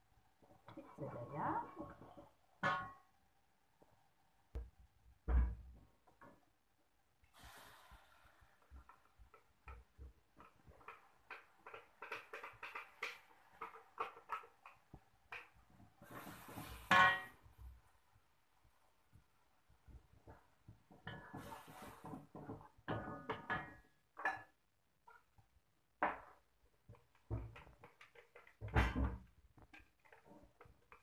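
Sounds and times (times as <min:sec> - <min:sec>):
spatula scraping hiss: 0:07.3 - 0:09.0, 0:21.3 - 0:22.1.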